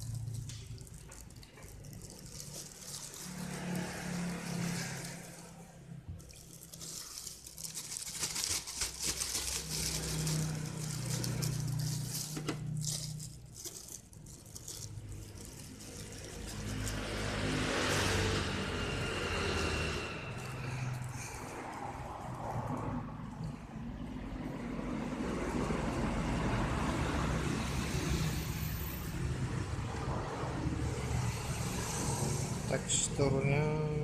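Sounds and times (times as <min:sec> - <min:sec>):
plastic bag crinkling: 0:00.0 - 0:18.4.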